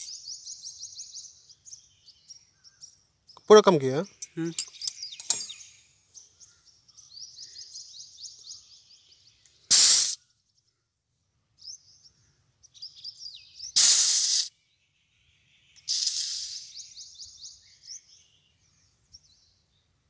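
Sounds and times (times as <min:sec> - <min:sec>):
faint high chirping: 0:00.0 - 0:10.9, 0:11.6 - 0:20.0
gas hissing from valve: 0:09.7 - 0:10.2, 0:13.8 - 0:14.5, 0:15.8 - 0:16.8.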